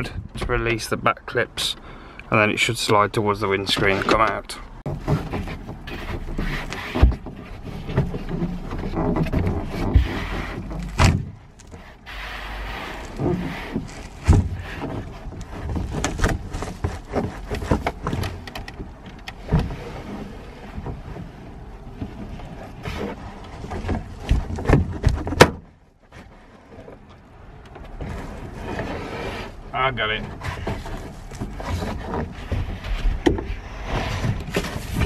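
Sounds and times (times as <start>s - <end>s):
clicks knocks and rustling: 3.7s - 12.0s, 13.0s - 28.9s.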